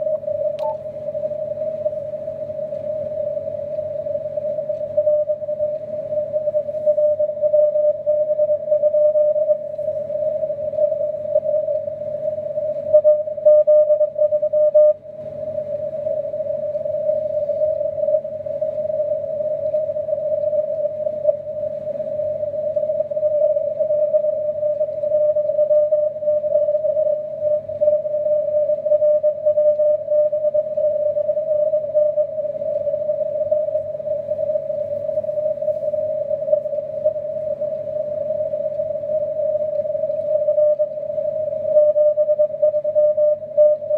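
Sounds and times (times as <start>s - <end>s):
steady radio tone: 0.0s - 43.9s
weak morse code signal: 3.8s - 43.9s
radio receiver hiss: 15.2s - 43.9s.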